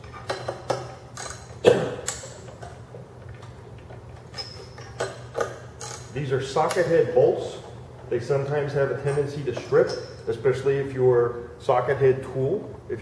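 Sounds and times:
hex wrench clicking on metal: 0:00.1 - 0:02.6, 0:04.4 - 0:06.9.

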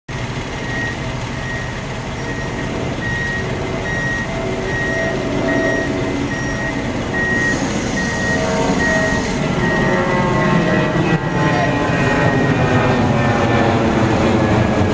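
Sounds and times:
heavy truck engine running: 0:00.1 - 0:14.9
back-up alarm beeping: 0:00.6 - 0:13.7
hiss: 0:07.5 - 0:08.2.

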